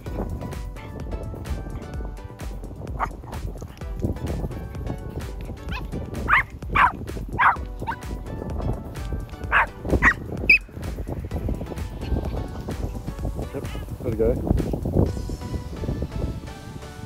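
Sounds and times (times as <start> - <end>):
background music: 0.0 - 17.0
small dog yapping: 3.0 - 3.8, 5.6 - 8.1, 9.5 - 10.6.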